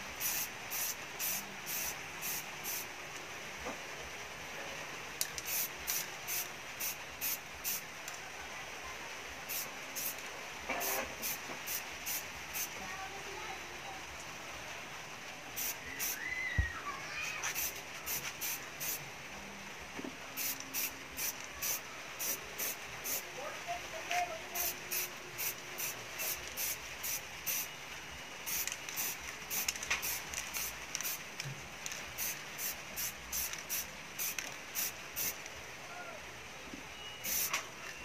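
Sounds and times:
spray-paint can bursts: 0.2s - 2.9s, 5.4s - 7.8s, 9.5s - 10.2s, 10.8s - 12.7s, 15.6s - 16.2s, 17.4s - 19.0s, 20.4s - 23.2s, 24.6s - 27.7s, 28.4s - 35.4s, 37.2s - 37.6s.

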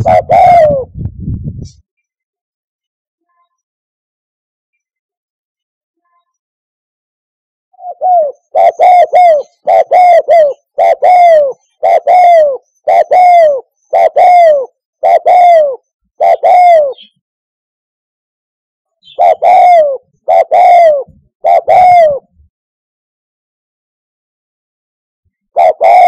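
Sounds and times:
dove cooing: 0.0s - 0.9s, 7.8s - 17.1s, 19.0s - 22.4s, 25.6s - 26.0s.

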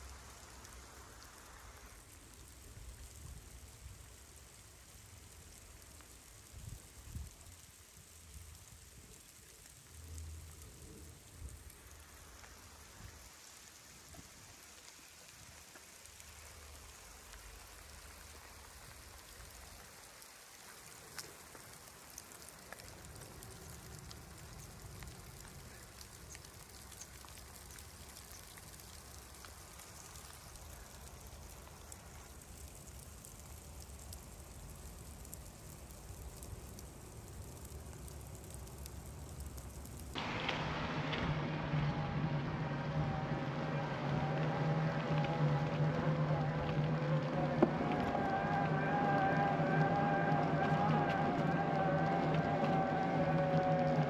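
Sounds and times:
water splashes: 0.0s - 54.0s
low rumble: 38.3s - 54.0s.

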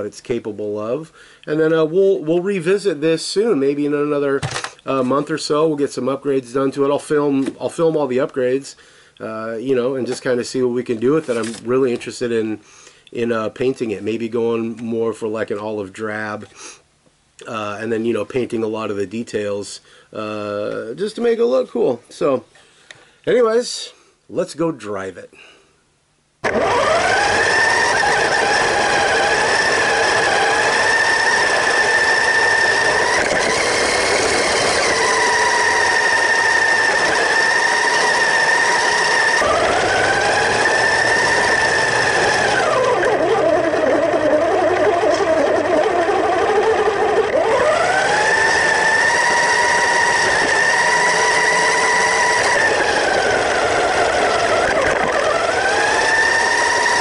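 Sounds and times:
toy truck electric motor whining: 26.4s - 57.0s.

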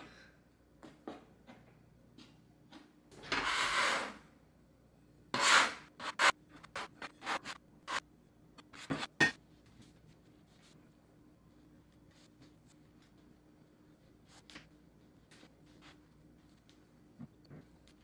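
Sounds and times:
metal scraper scraping wooden board: 3.3s - 4.2s, 5.4s - 8.0s.

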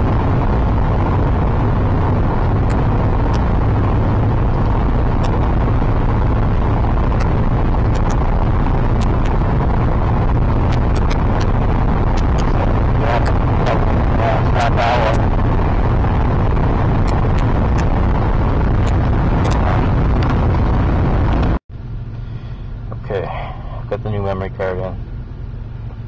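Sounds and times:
car cabin rumble: 0.0s - 26.0s
sharp ticks: 7.9s - 8.2s.

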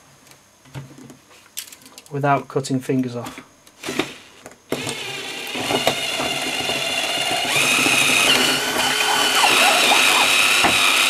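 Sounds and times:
drill cutting through plastic: 3.8s - 11.0s
steady high whine: 7.4s - 11.0s.

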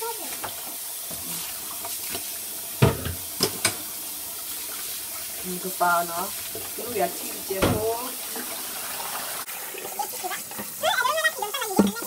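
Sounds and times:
tap running into bowl: 0.3s - 3.9s, 7.5s - 8.6s, 10.5s - 10.8s, 11.7s - 12.0s.

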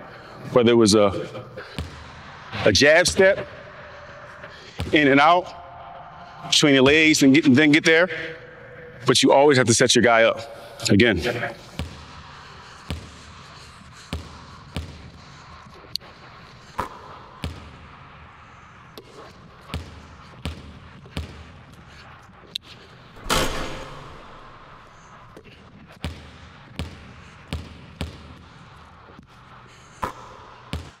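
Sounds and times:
basketball bouncing on gym floor: 1.7s - 2.2s, 4.7s - 5.0s, 11.7s - 12.2s, 12.8s - 13.3s, 14.1s - 15.2s, 16.7s - 17.9s, 19.0s - 21.8s, 25.4s - 28.6s, 30.0s - 31.0s
ball crashing against hoop: 23.2s - 24.4s.

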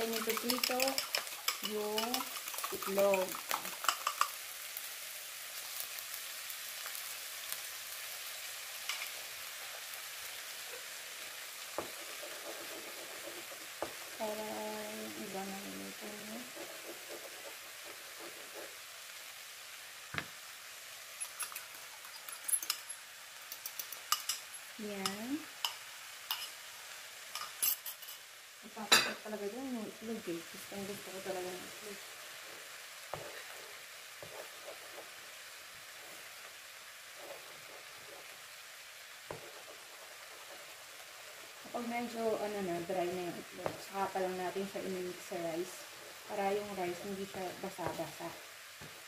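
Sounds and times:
spoon scraping a bowl: 0.0s - 4.4s, 16.4s - 18.8s, 21.2s - 24.5s, 25.6s - 26.6s, 33.2s - 36.4s
rice sizzling in a wok: 0.0s - 49.0s
wooden spatula knocking on pan: 20.1s - 20.4s.

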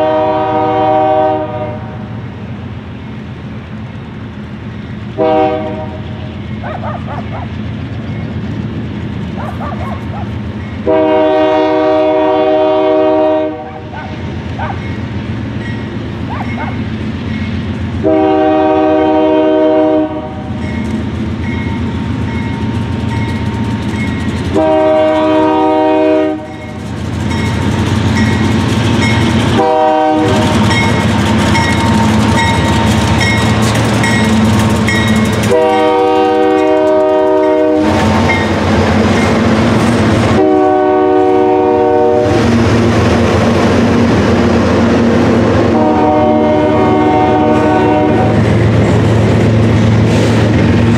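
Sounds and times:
locomotive air horn blasts: 0.0s - 2.1s, 5.2s - 6.2s, 10.8s - 13.9s, 18.0s - 20.6s, 24.5s - 26.6s, 29.5s - 30.9s, 35.4s - 38.4s, 40.2s - 42.4s, 45.6s - 48.4s
locomotive engines rumbling: 0.0s - 50.9s
freight cars clattering over rail joints: 30.4s - 37.0s.

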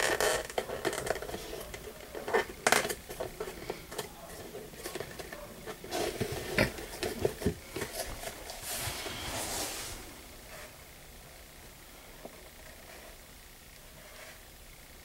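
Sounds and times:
leather rubbing and brushing: 8.1s - 10.6s.

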